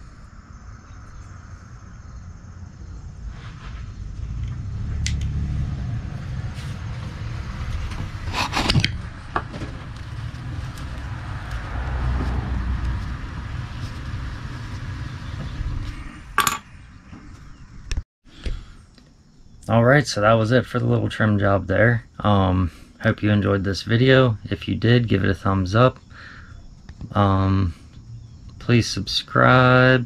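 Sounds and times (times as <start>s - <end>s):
low rumble: 0.0s - 18.0s.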